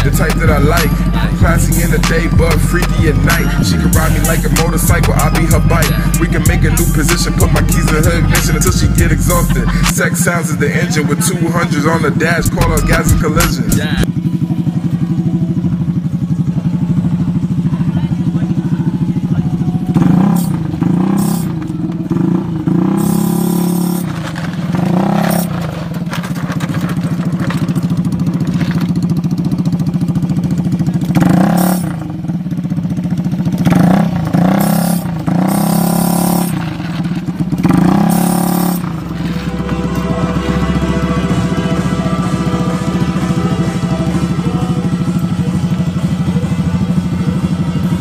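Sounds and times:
scooter engine idling and revving: 0:00.0 - 0:48.0.

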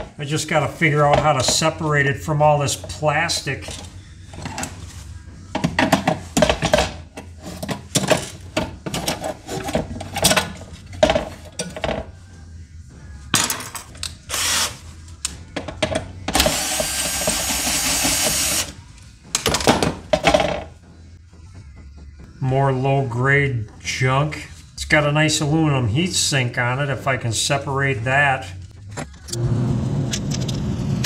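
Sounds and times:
cordless drill running: 0:14.3 - 0:14.8, 0:16.4 - 0:18.8.

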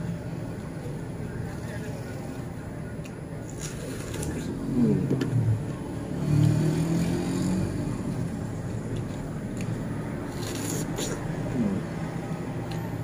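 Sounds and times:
vehicle engine rumble: 0:00.0 - 0:13.0.

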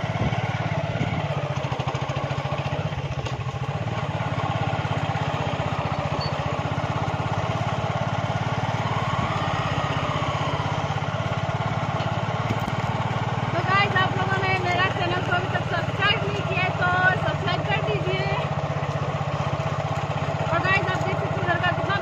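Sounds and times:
motorcycle engine running: 0:00.0 - 0:22.0.

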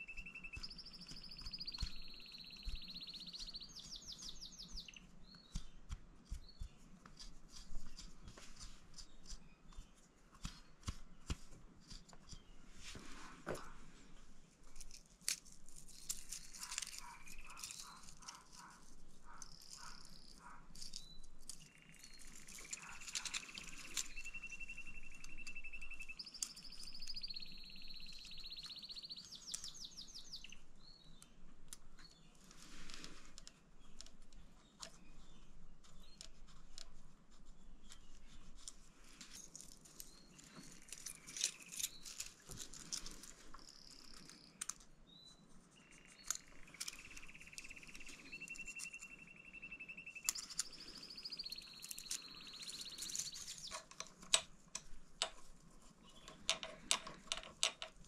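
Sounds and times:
birds chirping and trilling: 0:00.0 - 0:11.4, 0:15.9 - 0:58.0
hands handling parts clicking: 0:14.7 - 0:24.4, 0:38.6 - 0:44.9, 0:46.2 - 0:49.1, 0:51.6 - 0:58.0.

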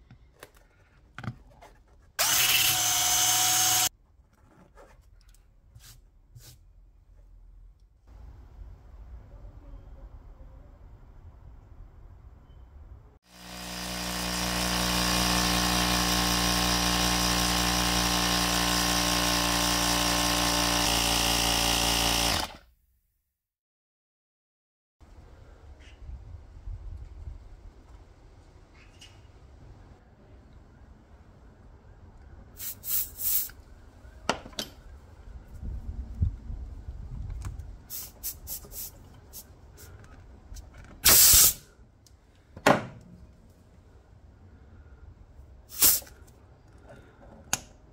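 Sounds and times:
tyre inflator motor hum: 0:02.2 - 0:03.9, 0:13.3 - 0:22.6
air hissing out of a tire: 0:32.6 - 0:33.6, 0:37.9 - 0:39.0, 0:41.0 - 0:41.7, 0:45.7 - 0:46.1.

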